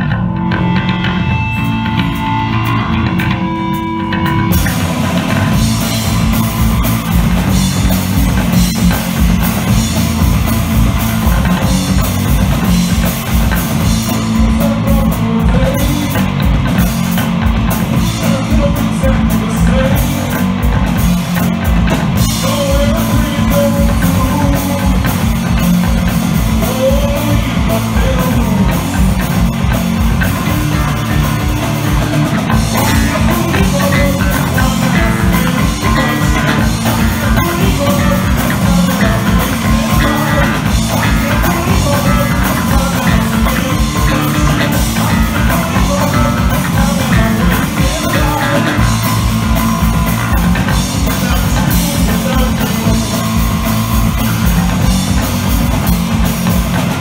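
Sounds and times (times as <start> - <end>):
bass guitar: 0.0 - 57.0
drum kit: 0.0 - 57.0
electric guitar: 0.0 - 57.0
man singing: 10.9 - 17.1, 17.8 - 21.0, 22.2 - 55.3.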